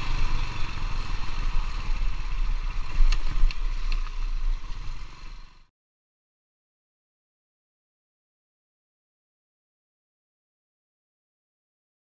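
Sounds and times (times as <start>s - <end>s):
motor scooter rumbling: 0.0s - 5.7s.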